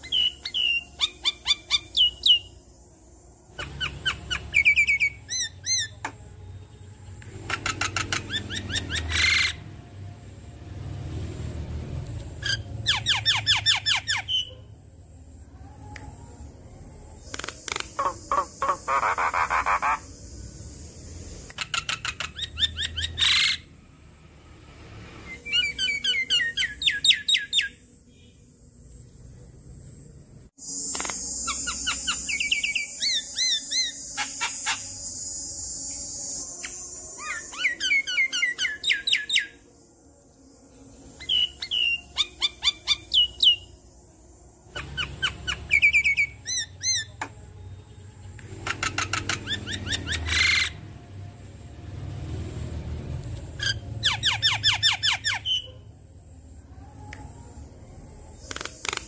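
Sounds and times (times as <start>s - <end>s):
bird singing whistled chirps: 0.0s - 2.7s, 3.5s - 9.6s, 17.1s - 23.7s, 25.2s - 28.4s, 30.6s - 39.7s, 40.7s - 43.9s, 44.7s - 50.8s, 53.6s - 55.7s.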